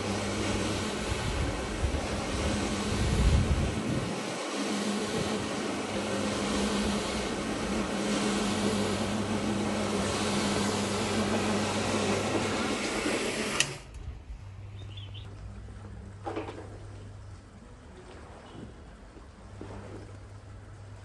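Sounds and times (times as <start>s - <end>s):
carpet scrubbing machine running: 0.0s - 14.0s.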